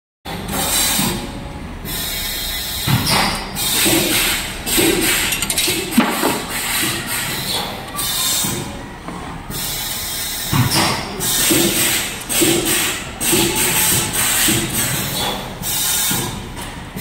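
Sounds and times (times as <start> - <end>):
wire-bending machine working: 0.3 - 17.0
machine knocks: 2.9 - 7.2.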